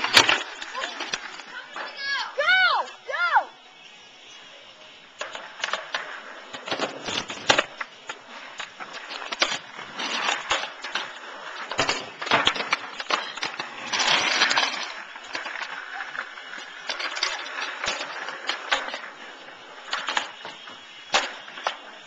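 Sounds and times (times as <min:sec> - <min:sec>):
skateboards clacking on concrete: 0:00.0 - 0:03.1, 0:04.4 - 0:22.0
skateboard wheels rolling: 0:00.0 - 0:22.0.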